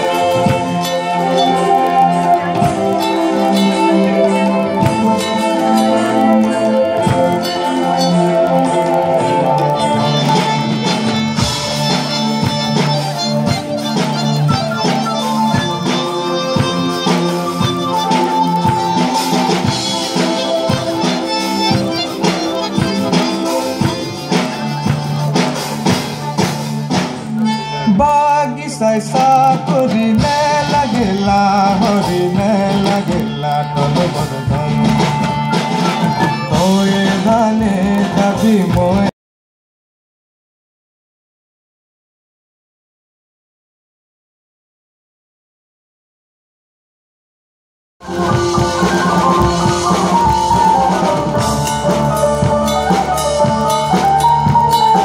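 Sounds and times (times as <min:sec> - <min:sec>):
harmonium drone: 0:00.0 - 0:28.0
wavering lead melody: 0:00.0 - 0:28.1, 0:48.0 - 0:55.0
drum kit beat: 0:00.0 - 0:39.1, 0:48.0 - 0:55.0.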